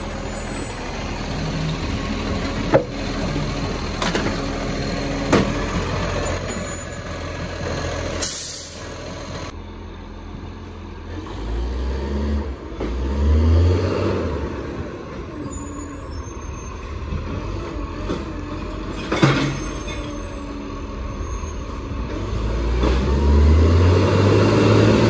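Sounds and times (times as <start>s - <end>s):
garbage truck engine running: 0.0s - 11.2s
diesel engine rumble: 0.0s - 25.0s
hydraulic arm clunks: 17.1s - 20.1s.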